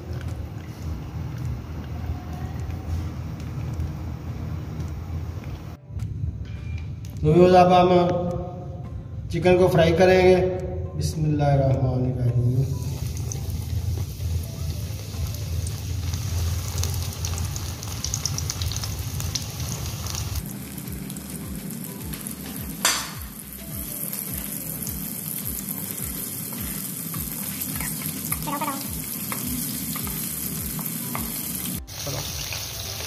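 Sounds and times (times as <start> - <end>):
chicken deep-frying sizzling: 12.5 - 33.0.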